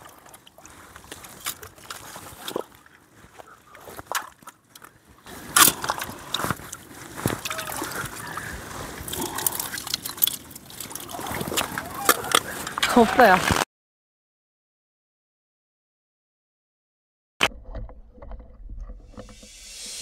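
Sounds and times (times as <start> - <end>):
rubber boots wading in water: 0.0 - 12.8
water sloshing and splashing: 0.0 - 13.6.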